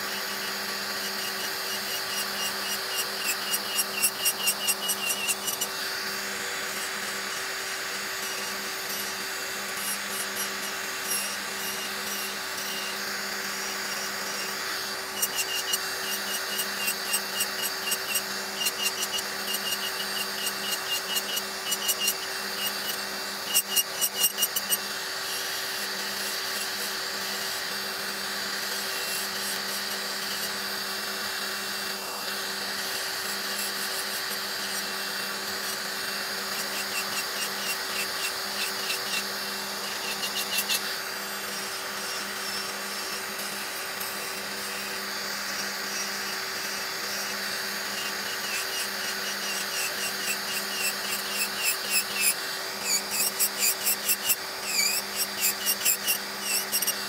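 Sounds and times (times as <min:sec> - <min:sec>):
nail drill motor hum: 0:00.0 - 0:57.0.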